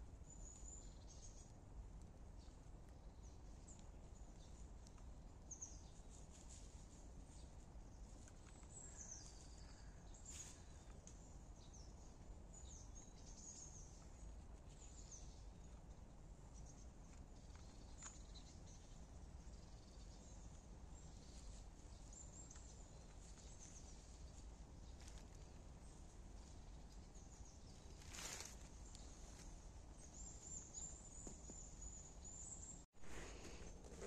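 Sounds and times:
faint bird chirps and calls: 7.3 - 34.0.

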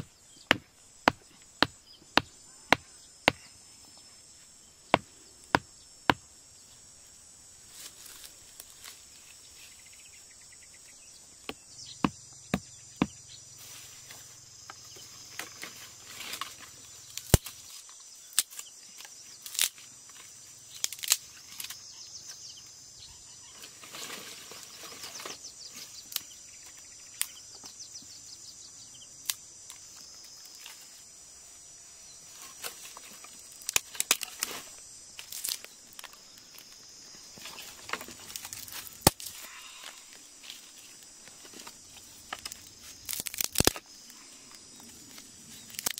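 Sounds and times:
machete knocking wooden stake: 0.0 - 3.5
high insect buzz: 0.0 - 45.9
dry sticks snapping: 16.3 - 17.6, 18.3 - 19.8, 20.8 - 21.8, 29.2 - 29.8, 32.6 - 34.6, 35.2 - 36.7, 37.9 - 39.4, 42.3 - 43.9, 45.1 - 45.9.

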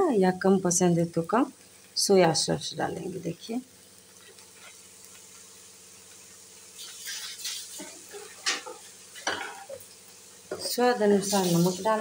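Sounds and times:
kitchen scrapes and rustles: 6.8 - 9.8, 10.5 - 12.0.

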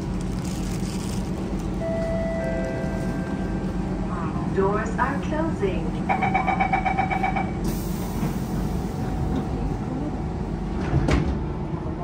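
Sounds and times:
train hum: 0.0 - 12.0
train door-closing chime beeping: 1.8 - 3.6, 6.1 - 7.8.

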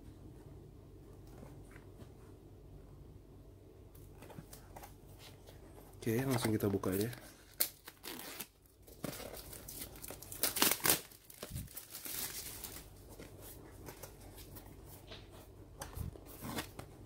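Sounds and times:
packaging rustling and crinkling: 4.2 - 17.0.

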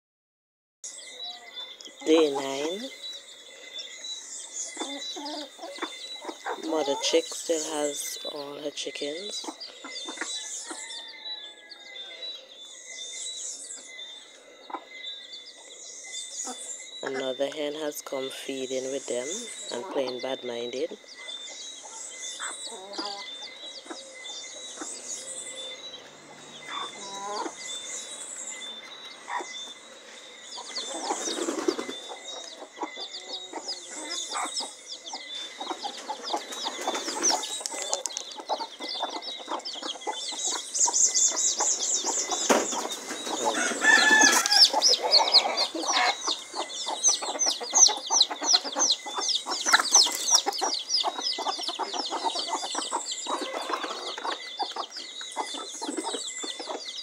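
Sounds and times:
chicks peeping: 0.9 - 57.0
hens clucking: 1.7 - 3.8, 4.6 - 11.1, 16.4 - 25.3, 26.0 - 27.8, 29.0 - 57.0
loud chicken call: 43.4 - 46.4.

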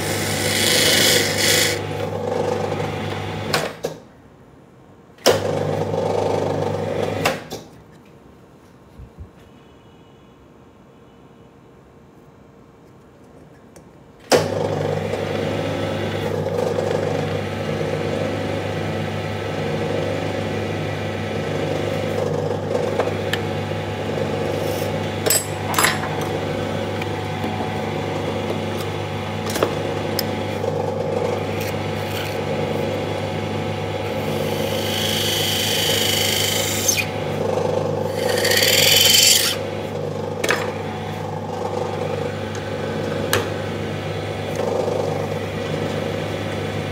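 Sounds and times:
tool scraping spinning wood: 0.0 - 2.6, 24.2 - 33.1, 34.2 - 39.6.

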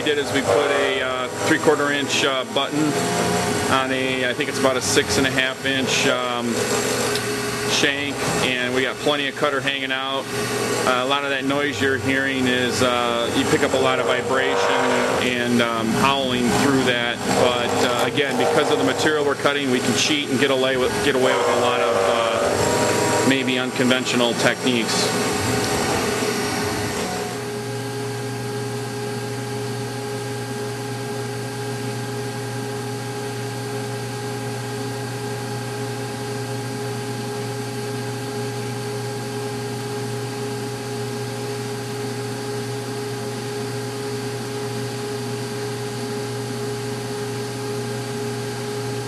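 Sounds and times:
milling spindle howling: 17.2 - 19.4, 20.9 - 23.8.

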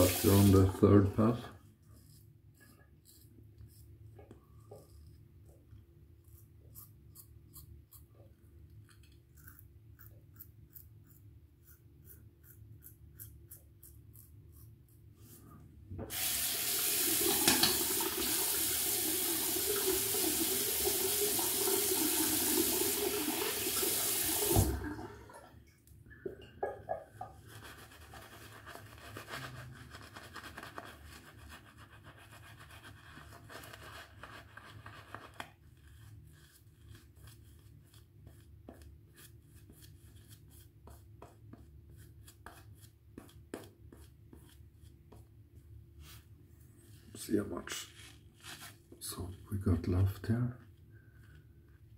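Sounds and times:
tap water running: 0.0 - 1.4, 16.0 - 25.6
razor scraping stubble: 1.9 - 4.0, 6.2 - 8.2, 9.1 - 15.0.

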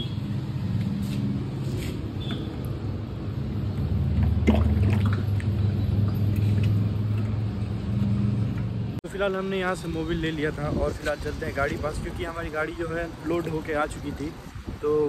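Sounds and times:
engine running hum: 0.0 - 9.0
oil trickling: 3.6 - 7.8.

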